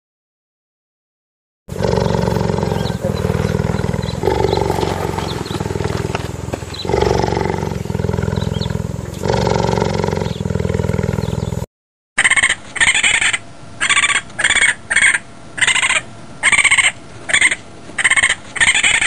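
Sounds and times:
big cat growling: 0:01.7 - 0:11.7.

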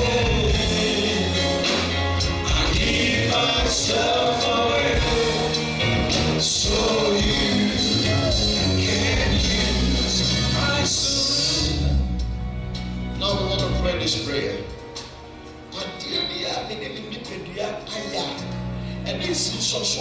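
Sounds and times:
gospel singing over a band: 0:00.0 - 0:12.3
bass line: 0:00.0 - 0:14.4.

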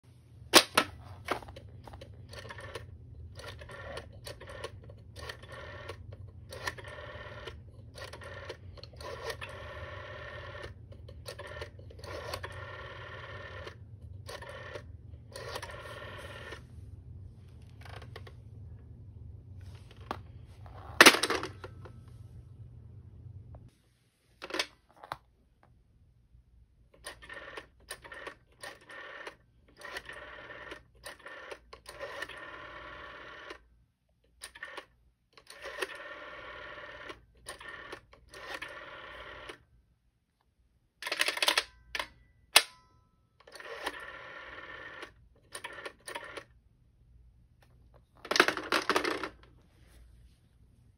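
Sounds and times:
rotary dial whirring: 0:00.6 - 0:22.1, 0:26.9 - 0:33.7, 0:34.3 - 0:39.7, 0:43.4 - 0:46.6
telephone handset plastic clacks: 0:41.0 - 0:42.8.

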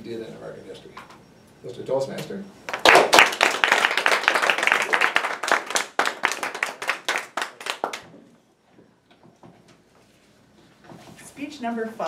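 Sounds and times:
small group applauding: 0:02.7 - 0:08.4.

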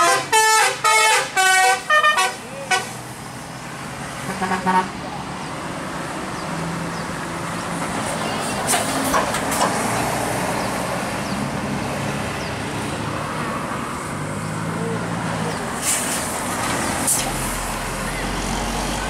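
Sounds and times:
vehicles driving past: 0:00.0 - 0:19.0.

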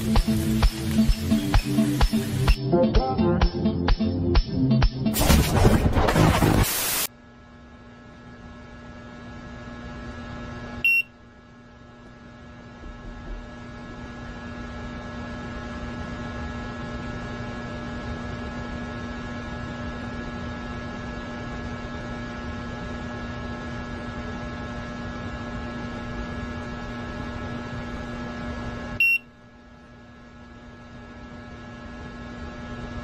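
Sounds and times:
hiss: 0:00.0 - 0:02.6, 0:06.5 - 0:07.1
electrical hum: 0:00.0 - 0:33.0
short high-pitched beep: 0:10.8 - 0:11.1, 0:29.0 - 0:29.2.

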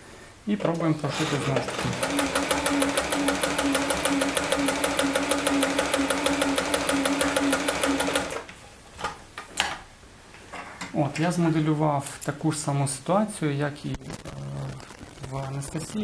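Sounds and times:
sewing machine running: 0:00.7 - 0:08.5.

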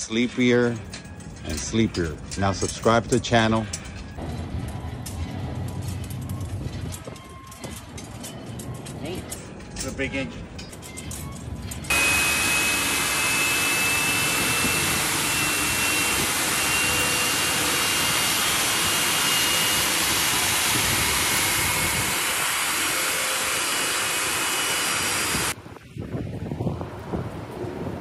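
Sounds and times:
high-pitched whine: 0:11.8 - 0:25.6
jet engine roaring: 0:11.9 - 0:25.6.

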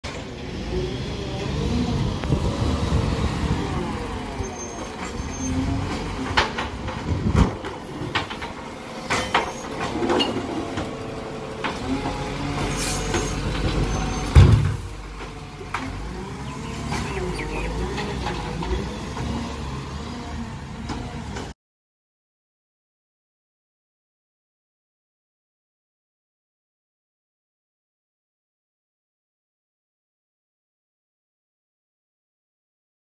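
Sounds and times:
diesel engine running: 0:00.1 - 0:21.5.

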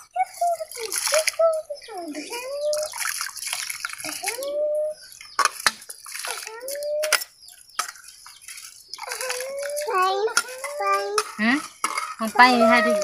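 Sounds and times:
child's drawn-out voice: 0:00.0 - 0:02.9, 0:04.1 - 0:05.0, 0:06.3 - 0:07.2, 0:09.0 - 0:11.3, 0:12.3 - 0:13.0
water and rice poured into pot: 0:02.3 - 0:04.5, 0:05.4 - 0:07.2, 0:07.8 - 0:11.0.

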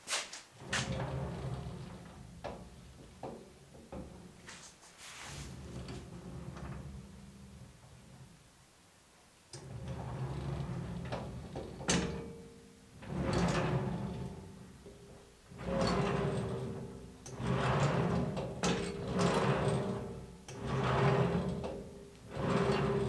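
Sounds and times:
metal carriage rolling on steel beam: 0:00.6 - 0:02.9, 0:09.6 - 0:12.3, 0:13.0 - 0:14.6, 0:15.4 - 0:23.0.

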